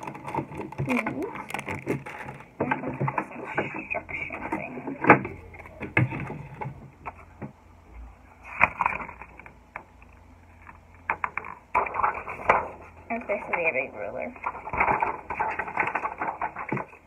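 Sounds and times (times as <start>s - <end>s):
packaging rustling: 0.0s - 2.6s, 14.4s - 17.0s.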